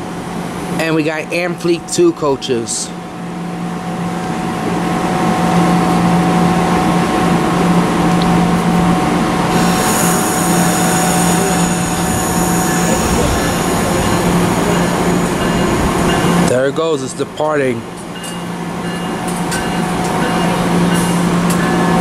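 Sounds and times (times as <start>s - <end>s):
train wheels rumbling on rail: 3.2s - 22.0s
high wheel squeal: 9.5s - 16.5s.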